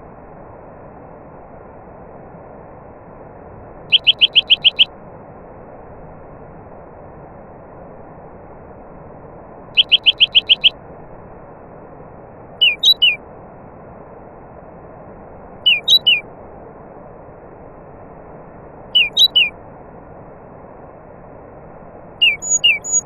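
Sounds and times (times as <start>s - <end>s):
songbird chirping: 3.9s - 4.9s, 9.8s - 10.7s, 12.6s - 13.2s, 15.6s - 16.2s, 19.0s - 19.5s, 22.2s - 23.0s.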